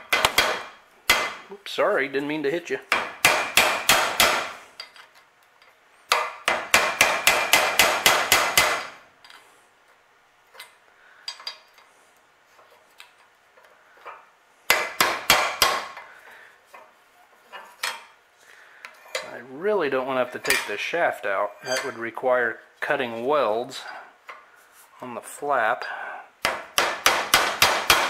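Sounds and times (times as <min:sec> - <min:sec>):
hammer striking metal blade: 0:21.6 - 0:22.0.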